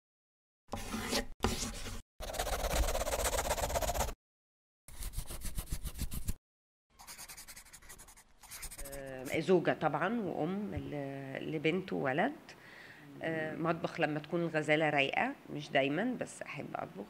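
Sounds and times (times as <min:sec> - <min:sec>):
marker scratching across paper: 0:00.7 - 0:04.2, 0:04.9 - 0:06.4, 0:07.0 - 0:09.4.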